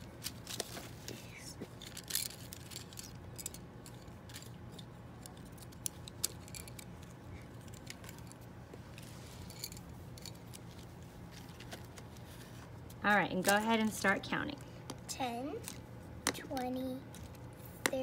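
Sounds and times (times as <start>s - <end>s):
wooden sticks clicking and clattering: 1.7s - 8.5s, 9.5s - 12.1s.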